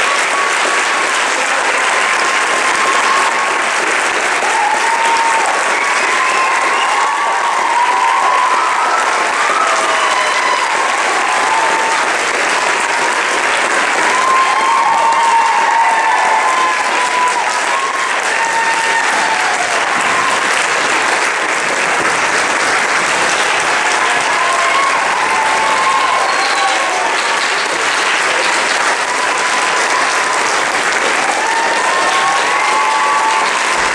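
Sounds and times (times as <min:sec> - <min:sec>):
audience applauding: 0:00.0 - 0:33.9
voices whooping: 0:04.4 - 0:12.2, 0:14.0 - 0:20.6, 0:23.3 - 0:27.4, 0:29.0 - 0:33.9.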